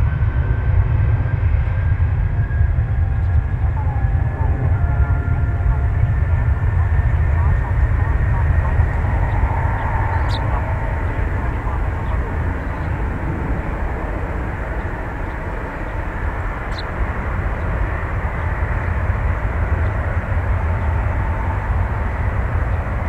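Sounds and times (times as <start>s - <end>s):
jet engines rumbling: 0.0s - 23.0s.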